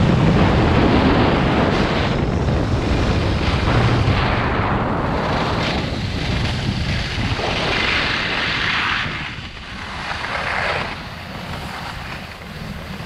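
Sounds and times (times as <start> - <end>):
skis scraping over hard snow: 0.0 - 13.0
wind on microphone: 0.0 - 13.0.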